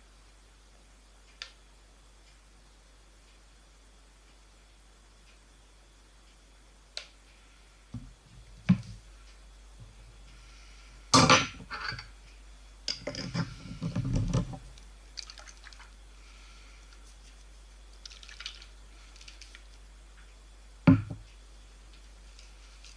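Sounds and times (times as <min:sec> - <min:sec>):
objects clattering on table: 0:12.9 - 0:14.6.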